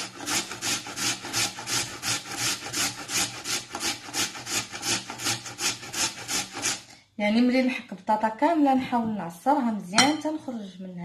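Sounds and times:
potato grated on metal grater: 0.0 - 7.0.

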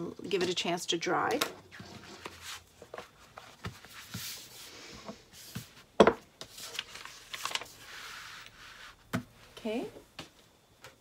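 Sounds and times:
paper rustling: 6.4 - 8.9.

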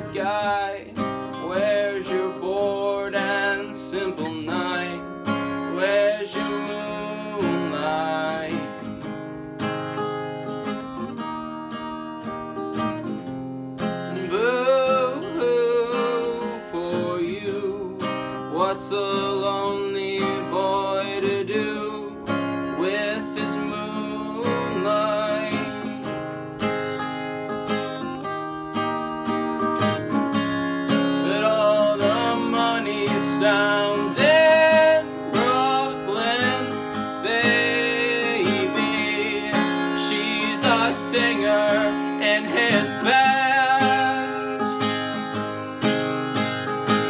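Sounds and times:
man singing: 0.0 - 8.9, 14.1 - 26.1, 31.0 - 45.2
acoustic guitar strumming: 0.0 - 47.0.

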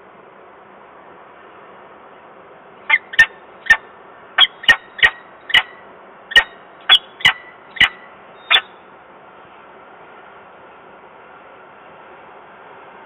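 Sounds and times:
falcon sharp calls: 2.9 - 3.8, 4.4 - 8.8.

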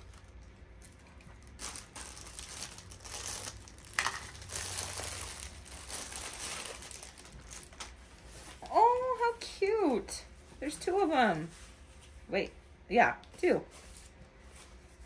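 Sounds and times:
plastic packaging crinkling: 0.0 - 9.0.

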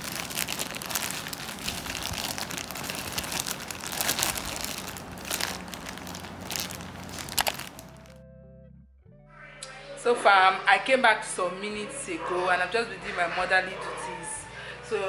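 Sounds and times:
plastic bag crinkling: 0.0 - 8.1.

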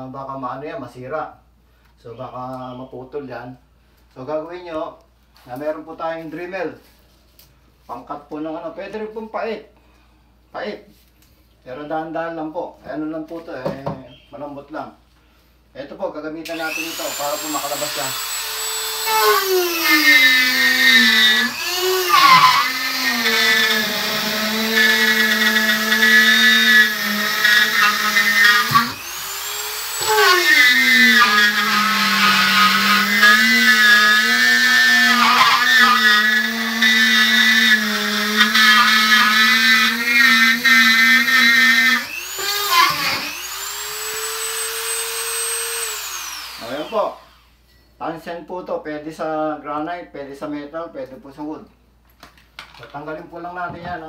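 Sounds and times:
rotary tool cutting drywall: 16.5 - 47.3.

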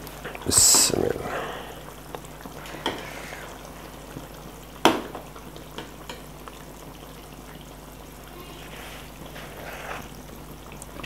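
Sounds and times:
ladle stirring a pot: 2.5 - 4.0, 8.7 - 10.3.

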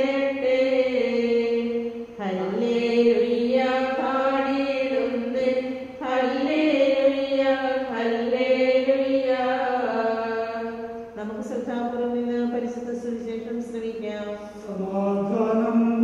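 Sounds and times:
person chanting long held notes: 14.1 - 16.0.

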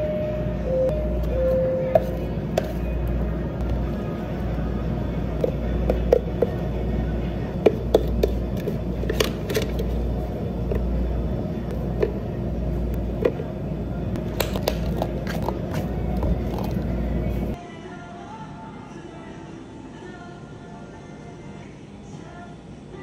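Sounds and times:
low machine hum: 0.0 - 17.6
lids snapping on cups: 7.6 - 9.9, 14.2 - 16.8.

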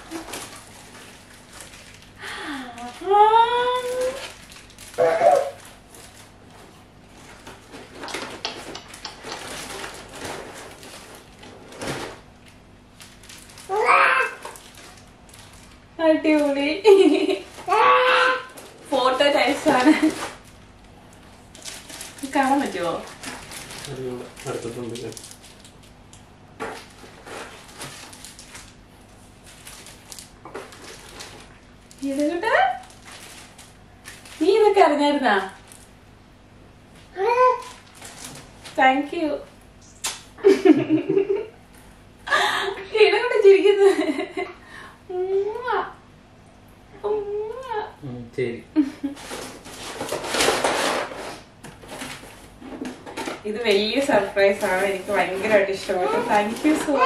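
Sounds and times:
plastic wrapping rustling: 0.0 - 36.0, 36.8 - 39.5, 49.0 - 57.0.

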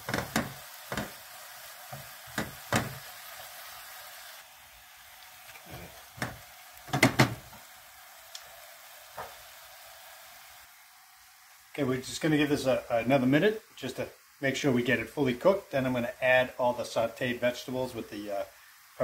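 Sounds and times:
meat sizzling in a skillet: 0.0 - 19.0.

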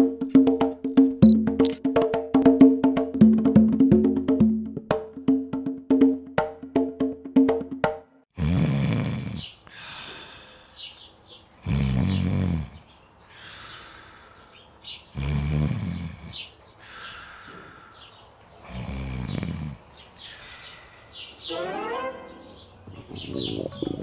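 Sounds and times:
cartoon snoring: 8.4 - 9.5, 11.6 - 12.8, 15.2 - 16.3, 18.6 - 19.8
quick rising sound effect: 21.4 - 23.0.

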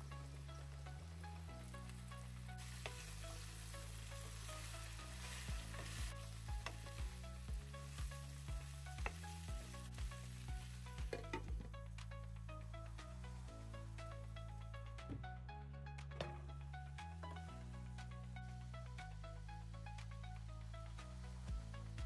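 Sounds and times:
vegetables sizzling in hot oil: 0.1 - 11.4.

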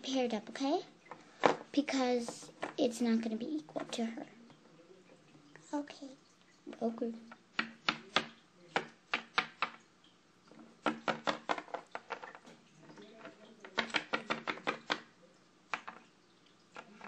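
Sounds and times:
plastic figurine tapping on surface: 10.8 - 12.3, 13.2 - 15.1.

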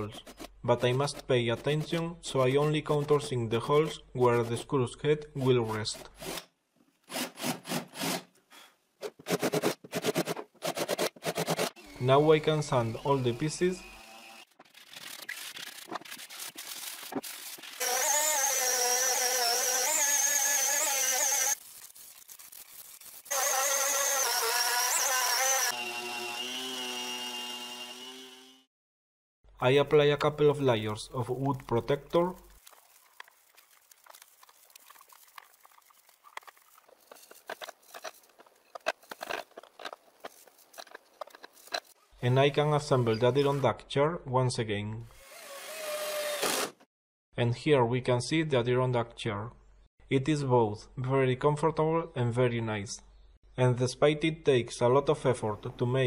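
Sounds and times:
orbital sander whining: 17.7 - 21.6, 23.3 - 28.7
paintbrush brushing on wood: 21.6 - 23.3.

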